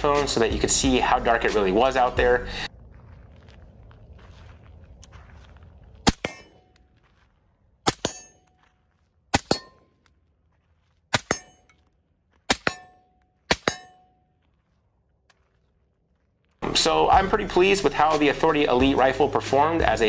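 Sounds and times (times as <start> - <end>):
low wind rumble: 0.0 - 7.9
bullet clanging on steel target: 6.1 - 6.9, 7.9 - 10.2, 11.1 - 14.3.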